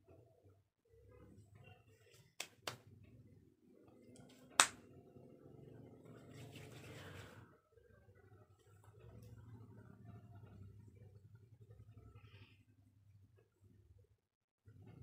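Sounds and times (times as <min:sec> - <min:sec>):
hands patting face: 0:02.1 - 0:02.8, 0:04.6 - 0:04.8
loud hand slap: 0:04.6 - 0:04.8
palms rubbing together: 0:06.2 - 0:07.4.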